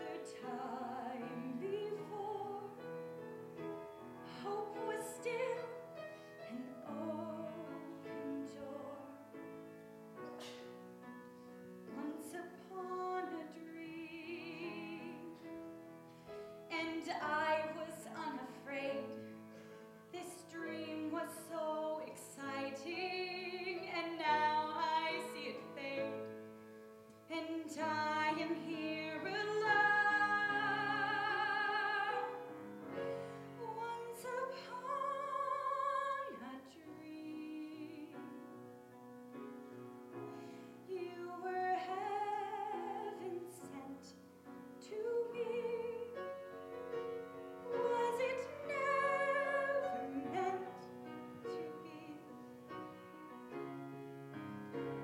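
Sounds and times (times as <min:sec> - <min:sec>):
grand piano: 0:00.0 - 0:55.0
woman singing operatically: 0:12.0 - 0:15.4, 0:27.3 - 0:32.4, 0:33.6 - 0:38.3, 0:40.9 - 0:44.1, 0:44.8 - 0:46.2, 0:47.6 - 0:50.9, 0:51.5 - 0:52.3.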